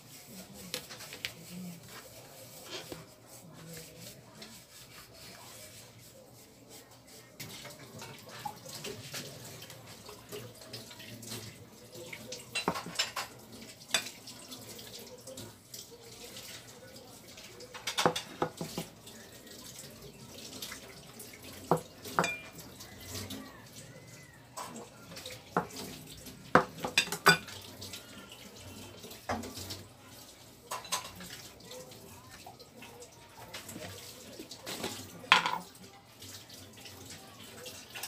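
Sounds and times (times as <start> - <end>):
plates clinking on a table: 12.5 - 14.2, 17.7 - 18.9, 21.7 - 22.6, 26.5 - 27.6, 30.7 - 31.2, 34.8 - 35.7.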